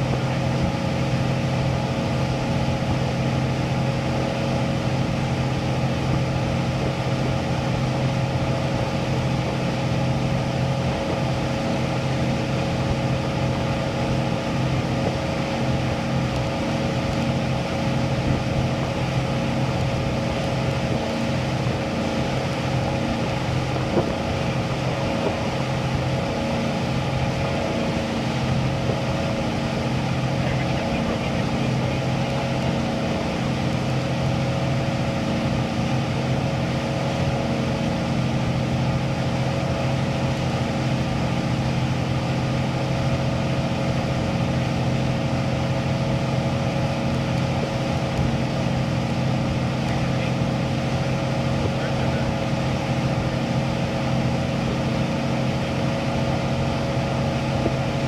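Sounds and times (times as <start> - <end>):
motorboat engine drone: 0.0 - 58.0
rushing water: 0.0 - 58.0.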